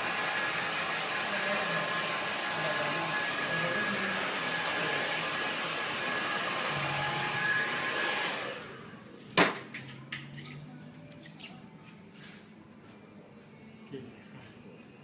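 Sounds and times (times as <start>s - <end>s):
hair dryer blowing: 0.0s - 9.0s.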